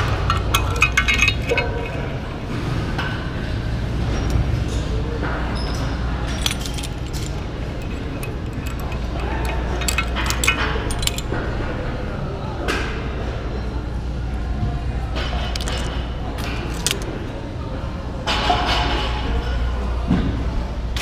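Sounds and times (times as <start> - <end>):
metal attachments clinking: 0.0 - 2.8, 6.3 - 11.5, 15.4 - 17.2.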